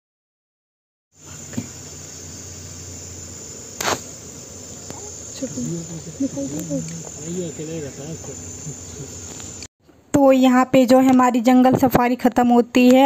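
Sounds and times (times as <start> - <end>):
forest insects droning: 1.2 - 9.7
sharp knock: 3.8 - 4.1.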